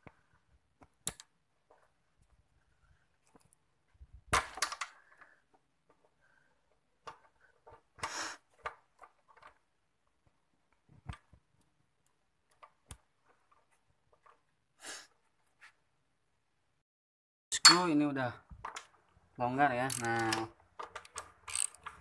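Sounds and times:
wrench scraping: 19.7s - 22.0s
wrench clicking on metal bolt: 19.8s - 22.0s.

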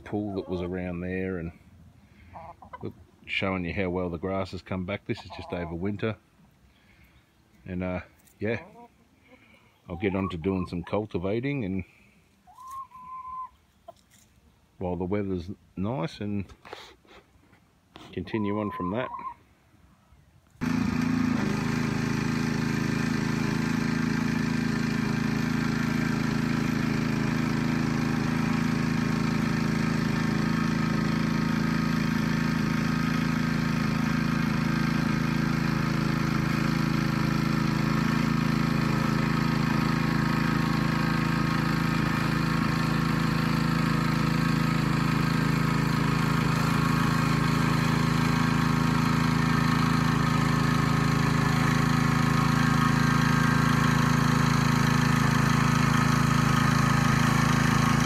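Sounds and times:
rototiller engine running: 20.6s - 58.0s.

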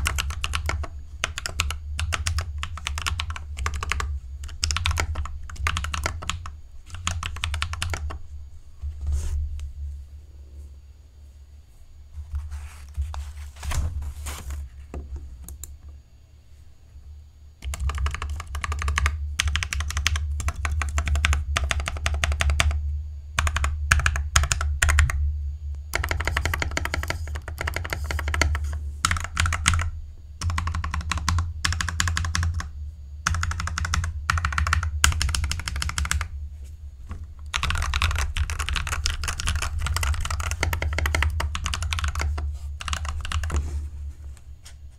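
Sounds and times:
mechanical keyboard typing: 0.0s - 8.2s, 17.6s - 22.8s, 23.4s - 25.2s, 25.9s - 36.3s, 37.4s - 43.7s.

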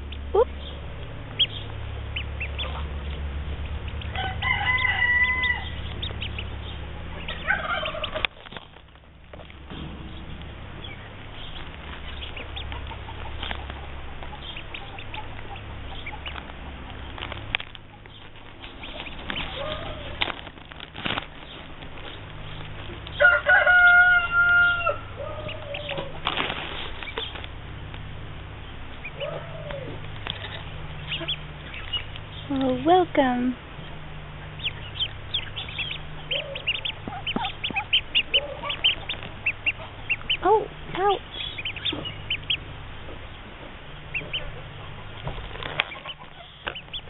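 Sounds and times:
fowl calling: 3.8s - 8.3s, 10.9s - 16.8s, 18.7s - 20.3s, 23.2s - 26.2s, 28.9s - 32.4s, 34.2s - 42.8s, 44.0s - 47.0s
rustling: 5.7s - 23.5s, 25.4s - 32.7s.

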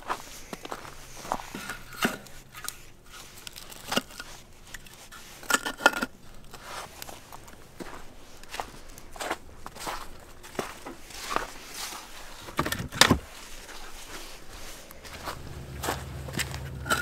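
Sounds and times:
fire crackling: 15.0s - 17.0s.

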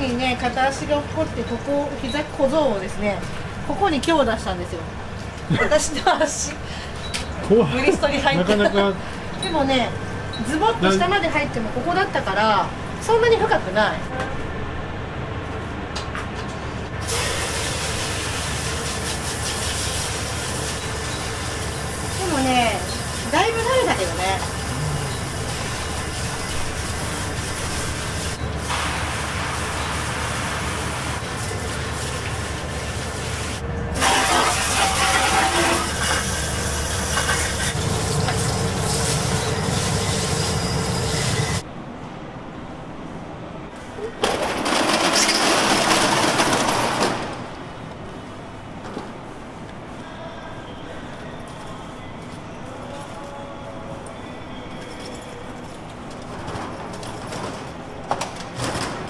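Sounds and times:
water spraying into metal vat: 17.0s - 40.0s.

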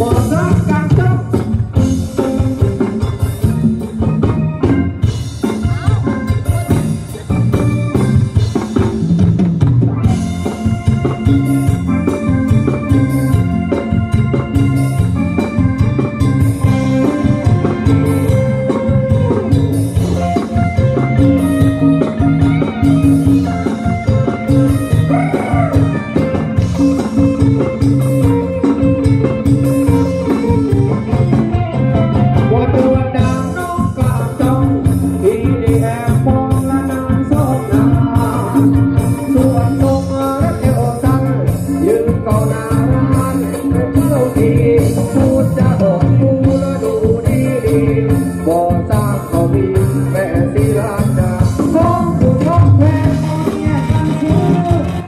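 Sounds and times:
person singing: 0.0s - 2.6s, 16.6s - 55.0s
drums: 0.0s - 55.0s
guitar: 0.0s - 55.0s
keyboard: 0.0s - 55.0s.

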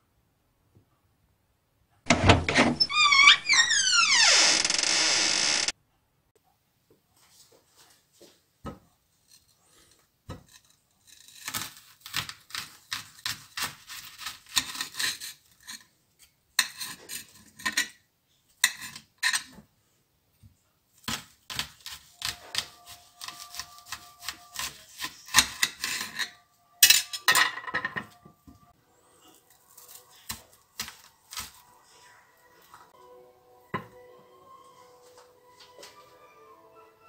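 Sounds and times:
knife slicing onion: 10.3s - 15.8s, 21.0s - 26.4s, 29.5s - 31.8s.

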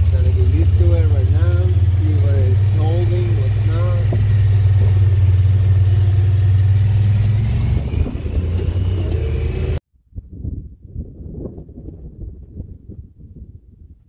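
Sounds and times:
vehicle engine drone: 0.0s - 9.8s
wind noise on microphone: 3.7s - 14.0s.

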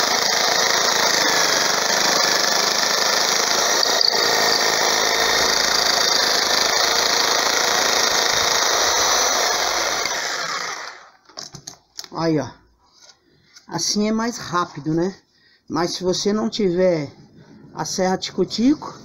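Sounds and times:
electric jigsaw sawing wood: 0.0s - 11.2s.

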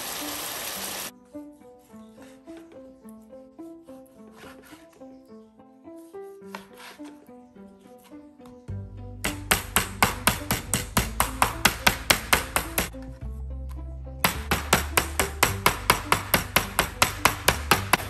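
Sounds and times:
mallet pounding meat on board: 9.3s - 12.9s, 14.2s - 18.0s.

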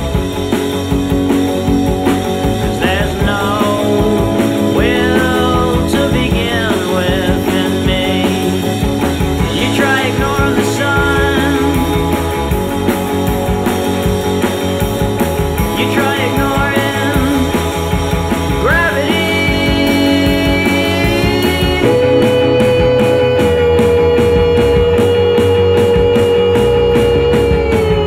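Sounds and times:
rock music: 0.0s - 28.0s.

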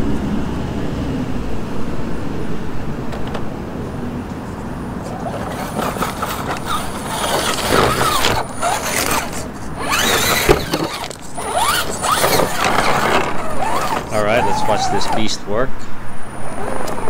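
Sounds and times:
electric motor and gears whining: 4.2s - 17.0s.

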